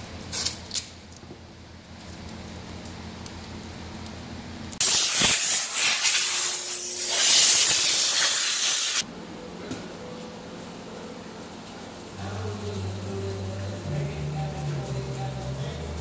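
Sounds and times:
compressed air blow gun hissing: 4.8 - 9.0.

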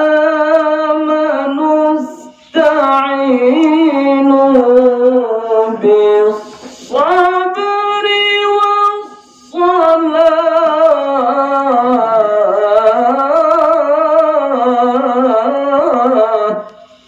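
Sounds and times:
man reciting melodically: 0.0 - 17.0
short breath: 2.2 - 2.6, 6.4 - 7.0, 9.1 - 9.6, 16.7 - 17.0.

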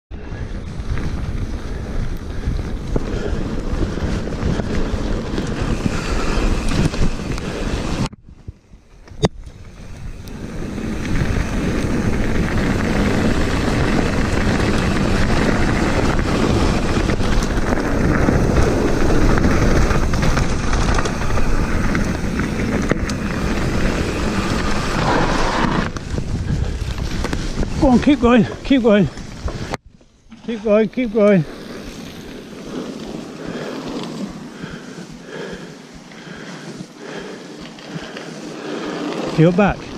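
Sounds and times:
wind rushing over microphone: 0.1 - 30.0
tyres rumbling on gravel: 0.4 - 8.1, 8.8 - 39.9.

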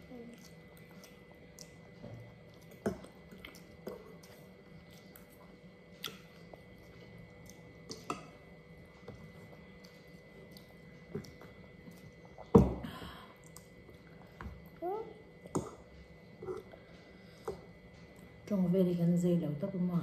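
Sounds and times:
chewing and slurping noodles: 0.0 - 12.5.

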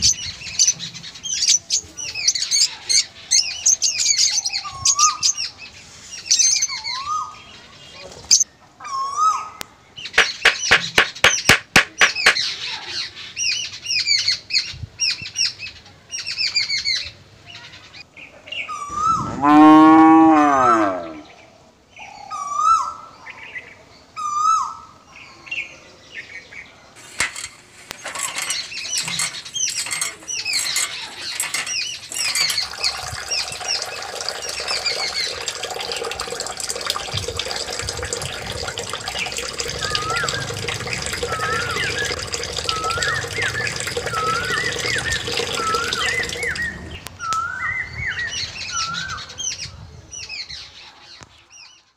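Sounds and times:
birds chirping: 0.0 - 14.4, 25.2 - 51.9
quick clicks: 10.2 - 12.4
running water: 10.2 - 12.6, 27.0 - 47.1
cow mooing: 19.4 - 21.2.

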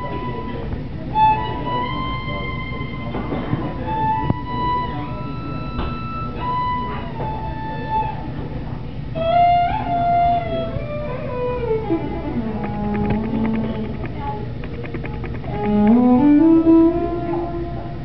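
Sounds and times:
bowed violin: 0.0 - 18.0
plucked upright bass: 9.2 - 17.9.

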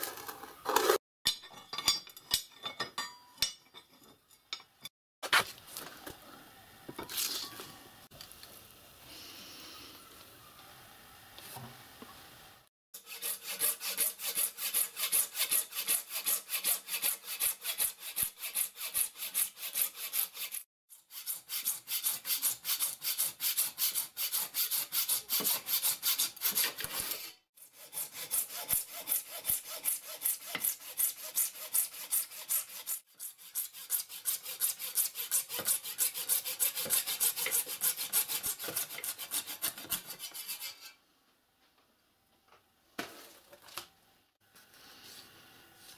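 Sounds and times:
hacksaw cutting plastic: 0.0 - 1.0, 13.0 - 41.0.

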